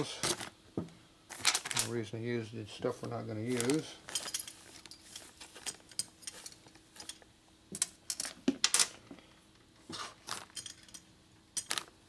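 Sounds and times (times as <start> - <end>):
screws and washers clinking: 1.3 - 1.9, 3.4 - 8.9, 10.3 - 11.9.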